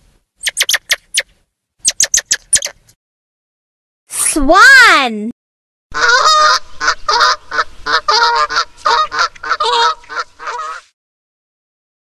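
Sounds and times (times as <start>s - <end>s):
swan honking: 5.9s - 10.9s.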